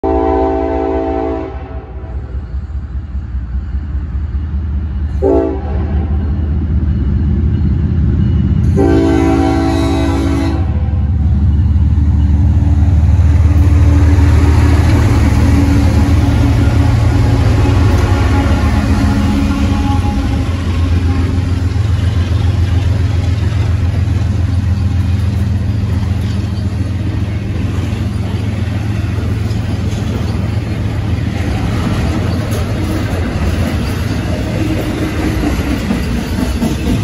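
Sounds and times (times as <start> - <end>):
locomotive air horn: 0.0 - 2.3, 5.2 - 6.1, 8.7 - 10.9, 15.6 - 21.6
diesel engines rumbling: 2.4 - 37.0.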